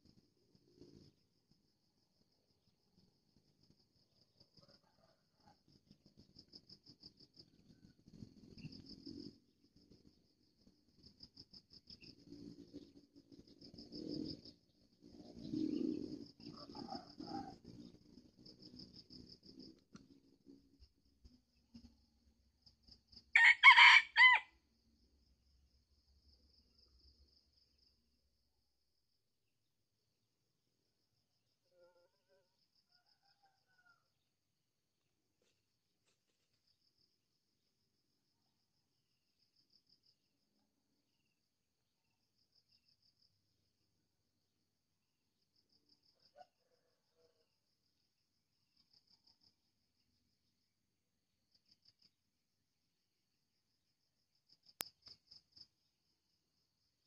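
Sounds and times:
faint insect chirping: 0.0s - 57.0s
rooster crowing: 16.5s - 17.6s, 23.4s - 24.5s, 31.9s - 34.1s.

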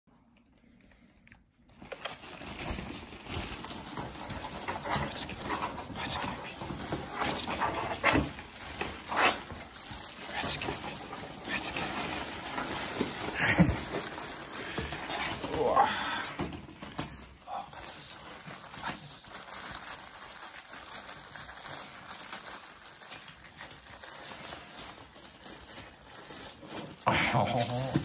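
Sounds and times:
plastic bag crinkling: 0.5s - 28.0s.

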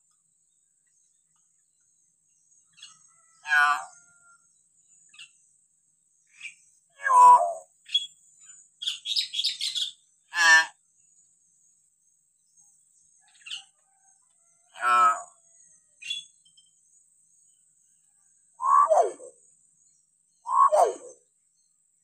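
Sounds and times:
myna bird calling: 18.6s - 19.4s, 20.4s - 21.2s
high chattering bird notes: 20.5s - 21.2s.

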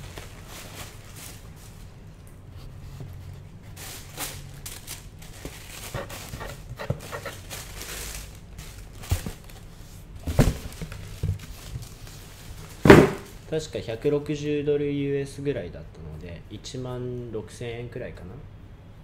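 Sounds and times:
tissue paper rustling and crinkling: 0.0s - 2.1s, 3.1s - 13.5s
shoes and box knocking: 12.8s - 13.3s.

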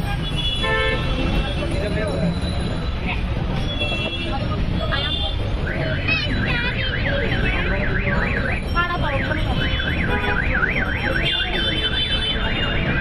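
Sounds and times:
street traffic rumble: 0.0s - 13.0s
warbling electronic alarm: 5.7s - 11.8s.

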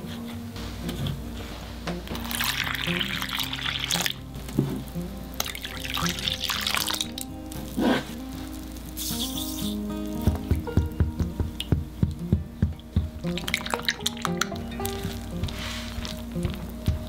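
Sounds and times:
background music: 0.0s - 17.0s
liquid pouring into flour: 2.2s - 4.2s.

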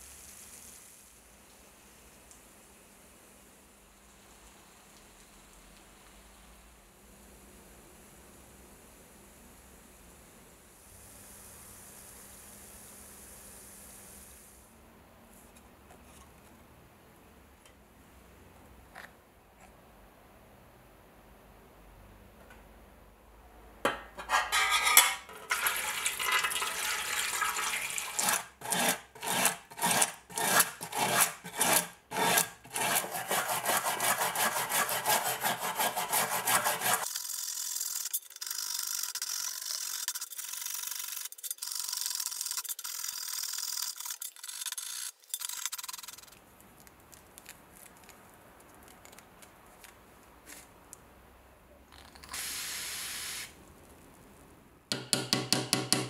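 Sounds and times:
brush scrubbing metal blade: 24.2s - 26.8s, 27.6s - 37.2s.

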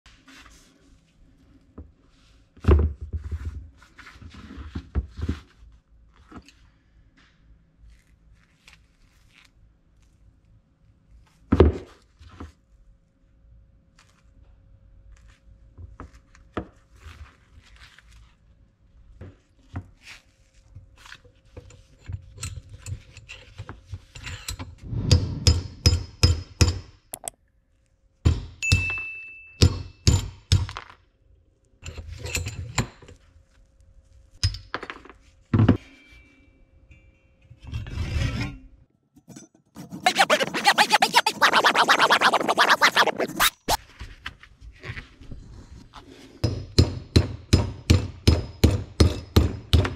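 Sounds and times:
hand saw cutting: 39.8s - 43.8s.

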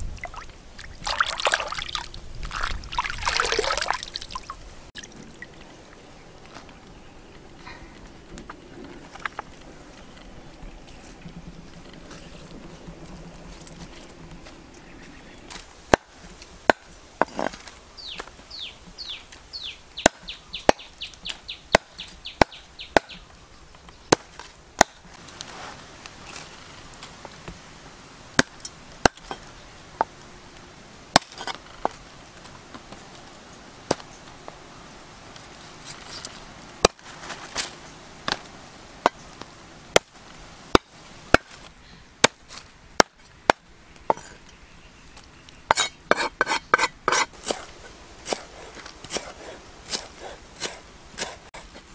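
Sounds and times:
cleaver chopping on wooden block: 21.7s - 23.2s.

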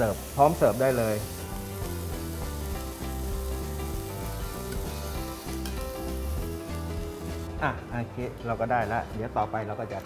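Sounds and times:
vegetables sizzling in a grill pan: 0.0s - 7.5s
background music with held notes: 0.0s - 10.0s.

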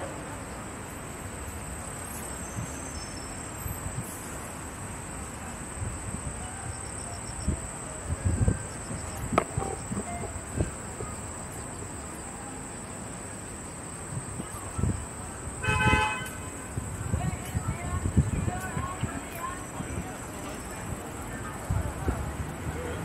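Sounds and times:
high-pitched insect drone: 6.2s - 15.6s.

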